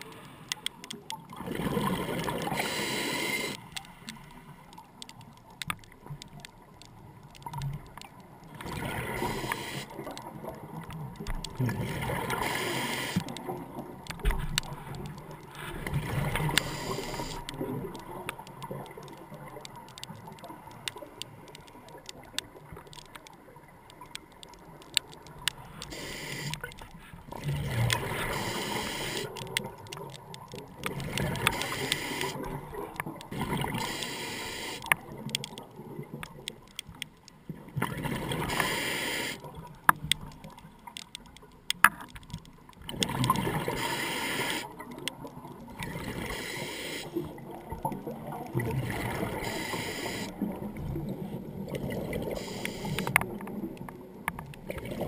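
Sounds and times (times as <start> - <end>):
exhaled bubbles underwater: 1.1 - 3.2, 8.5 - 14.0, 14.6 - 19.9, 27.3 - 34.3, 42.8 - 55.0
sharp clicks: 16.4 - 26.9, 27.8 - 37.4, 51.7 - 54.6.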